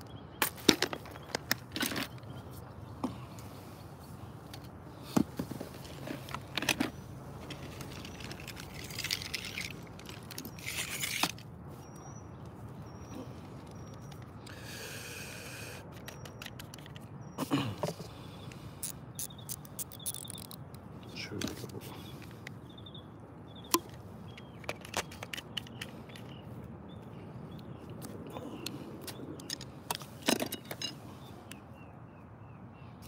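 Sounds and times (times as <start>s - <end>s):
gear being handled: 18.8s - 20.7s.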